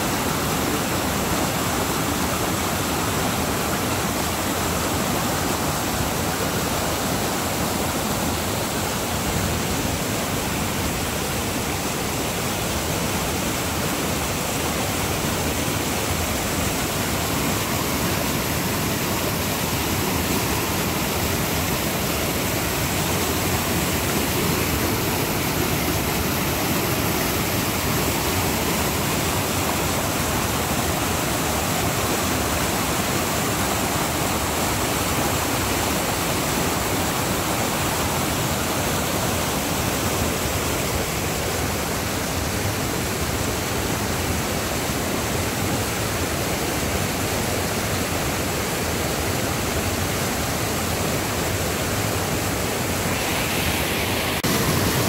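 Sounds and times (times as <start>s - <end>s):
creek rushing through rapids: 0.0s - 55.0s.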